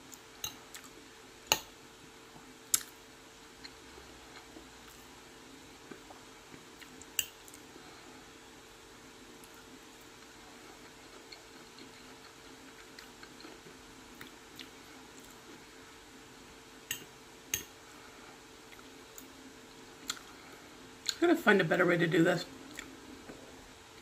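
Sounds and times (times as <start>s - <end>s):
faint steady hum: 0.0s - 24.0s
quiet chewing: 5.8s - 8.0s, 9.4s - 15.7s, 16.9s - 21.2s, 22.6s - 24.0s.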